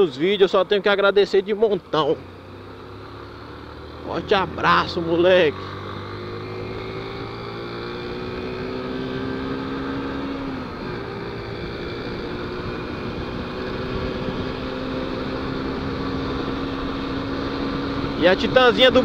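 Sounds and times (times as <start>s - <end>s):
motorcycle engine running: 0.1s - 19.0s.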